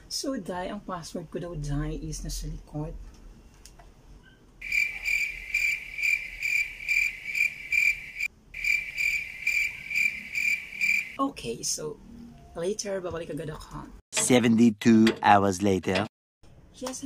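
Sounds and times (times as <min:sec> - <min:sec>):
cricket trilling: 0:04.6 - 0:11.2.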